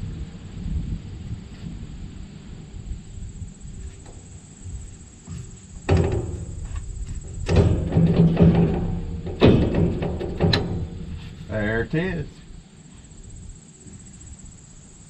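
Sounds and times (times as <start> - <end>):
metal clunks and scraping: 3.8 - 12.0
loud metal clanks: 5.3 - 11.8.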